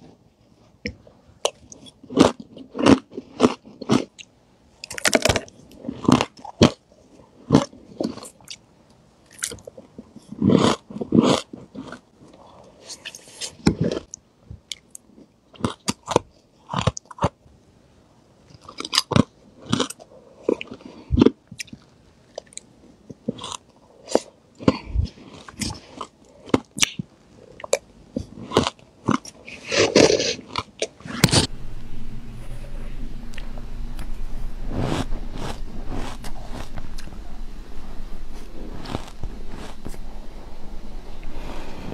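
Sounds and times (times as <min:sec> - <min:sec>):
crunching ice being chewed: 0:01.4 - 0:08.6, 0:09.3 - 0:17.4, 0:18.5 - 0:31.1, 0:34.9 - 0:37.1, 0:38.7 - 0:40.0
steady low hum: 0:31.1 - 0:41.9.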